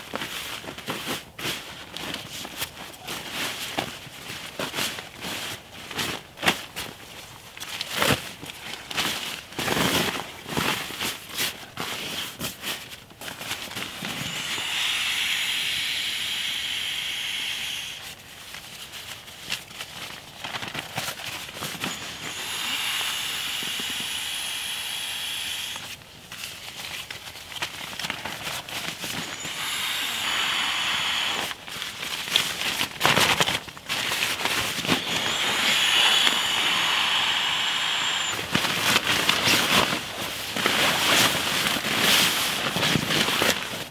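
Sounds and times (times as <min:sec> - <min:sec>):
air rushing into sleeping mat: 0:13.6 - 0:18.2, 0:21.6 - 0:26.0, 0:28.8 - 0:31.8, 0:34.2 - 0:39.9.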